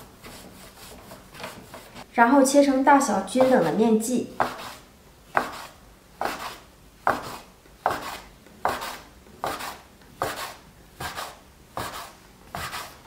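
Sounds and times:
dough scraper knocking on board: 0:07.1 - 0:08.1.

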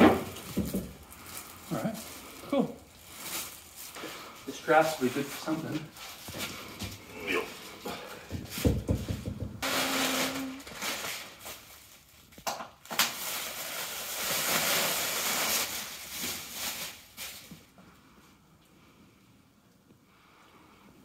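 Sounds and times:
plastic wrap crinkling: 0:00.1 - 0:07.8, 0:09.6 - 0:17.8.

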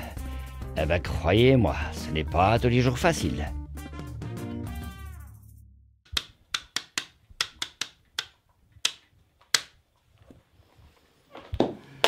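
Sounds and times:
sharp clicks: 0:06.1 - 0:09.8.

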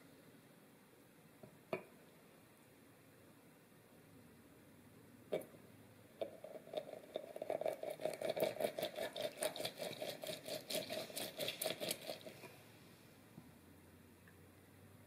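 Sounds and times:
lemon rind rubbing on juicer: 0:06.5 - 0:12.4.

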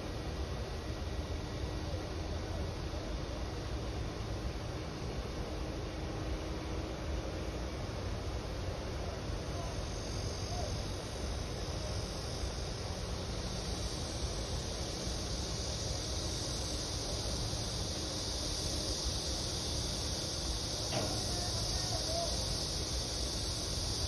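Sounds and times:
insects droning: 0:00.0 - 0:24.0
distant road traffic rumble: 0:07.9 - 0:24.0.

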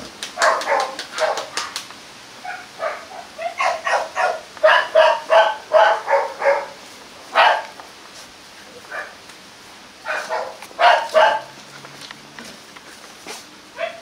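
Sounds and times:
puppies barking and yipping: 0:00.4 - 0:01.7, 0:02.4 - 0:07.7, 0:10.0 - 0:11.7, 0:13.8 - 0:14.0.

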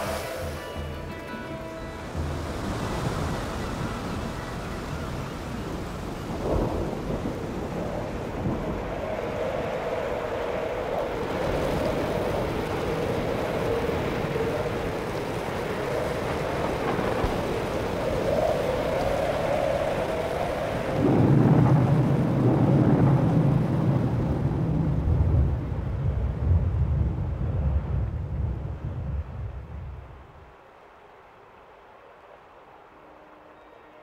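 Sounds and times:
rain hissing: 0:00.0 - 0:24.0
thunder rumble: 0:00.0 - 0:30.5.

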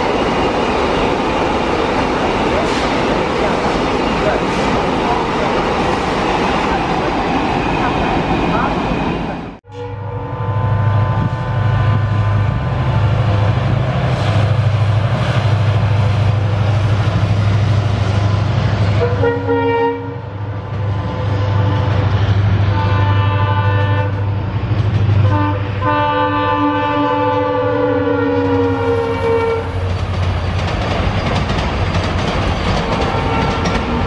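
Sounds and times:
train coaches clattering: 0:00.0 - 0:09.9, 0:11.6 - 0:26.2, 0:28.2 - 0:34.0
locomotive air horn: 0:09.6 - 0:12.4, 0:19.0 - 0:20.3, 0:21.0 - 0:24.3, 0:25.2 - 0:29.9, 0:33.0 - 0:33.7.

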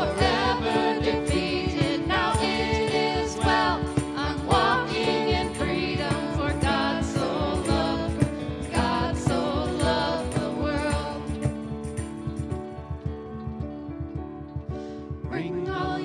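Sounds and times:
group singing worship song: 0:00.0 - 0:11.8, 0:15.3 - 0:16.0
steady beat: 0:00.0 - 0:12.6
grand piano: 0:00.0 - 0:16.0.

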